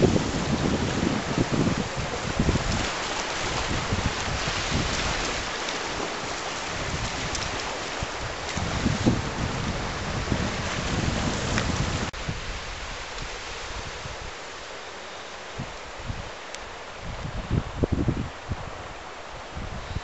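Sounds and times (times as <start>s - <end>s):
sea washing on rocky shore: 0.0s - 14.6s
wind gusting against microphone: 0.0s - 20.0s.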